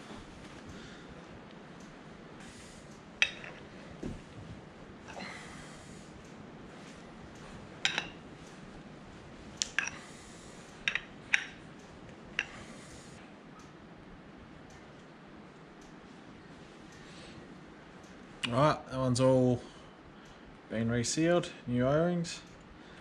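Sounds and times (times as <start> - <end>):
person breathing: 5.1 - 6.2, 9.8 - 10.8.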